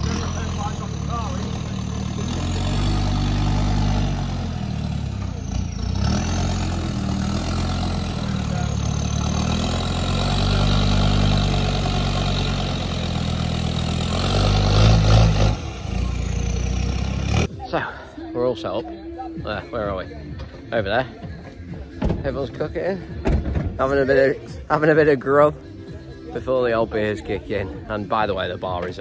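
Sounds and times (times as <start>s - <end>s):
car engine running at low revs: 0.0s - 17.8s.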